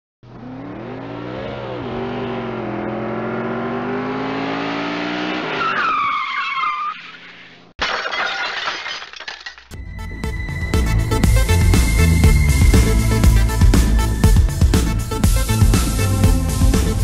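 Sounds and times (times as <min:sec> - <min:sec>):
car engine revving: 0:00.2 - 0:05.6
tyres screeching: 0:05.5 - 0:07.7.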